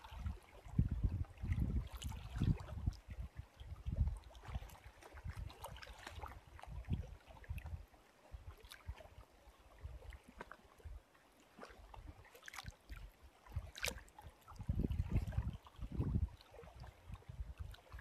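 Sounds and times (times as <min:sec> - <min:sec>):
water slapping against boat hull: 0:13.6 - 0:16.2.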